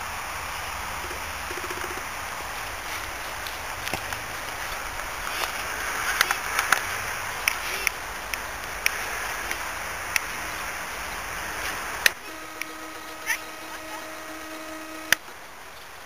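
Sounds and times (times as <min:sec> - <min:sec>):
outdoor background hiss: 0:00.0 - 0:16.0.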